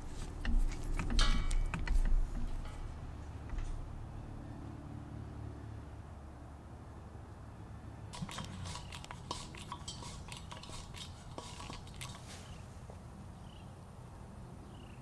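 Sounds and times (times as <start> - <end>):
metal fittings clicking and clinking: 0.2 - 2.9, 8.2 - 12.2.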